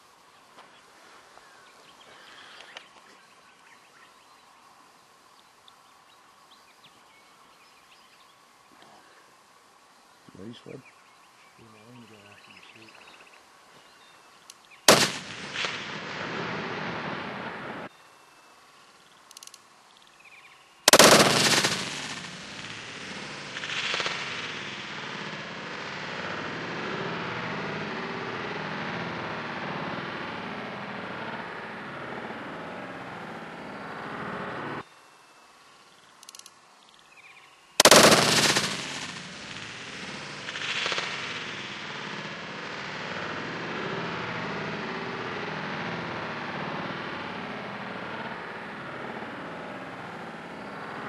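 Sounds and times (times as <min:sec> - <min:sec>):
faint clicks: 0:02.5 - 0:03.1, 0:14.4 - 0:14.7, 0:19.2 - 0:20.2, 0:36.1 - 0:37.0
rifle shots with rolling echo: 0:14.9 - 0:17.9, 0:20.9 - 0:33.2, 0:37.8 - 0:51.0.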